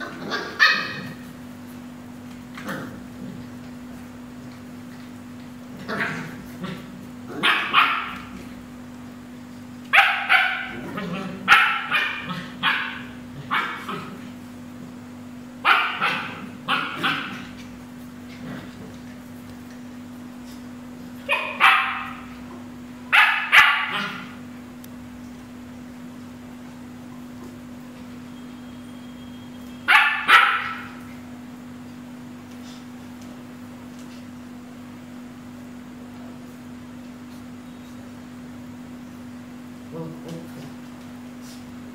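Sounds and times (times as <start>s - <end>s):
puppy barking: 0.0s - 1.2s, 5.9s - 8.5s, 9.9s - 14.2s, 15.6s - 17.6s, 21.2s - 22.4s, 23.1s - 24.4s, 29.8s - 31.1s.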